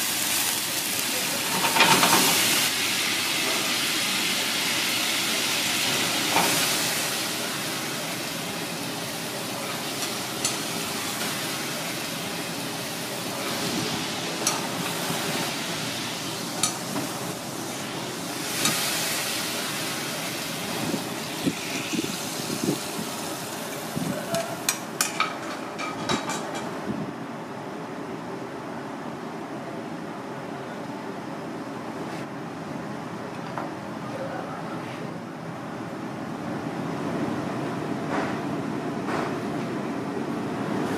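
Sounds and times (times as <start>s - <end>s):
sauce sizzling in a wok: 0.0s - 24.0s.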